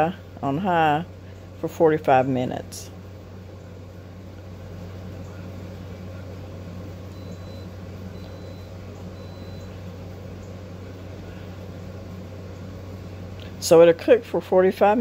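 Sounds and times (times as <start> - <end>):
low electrical hum: 0.0 - 15.0
faint high beeps: 7.1 - 9.8.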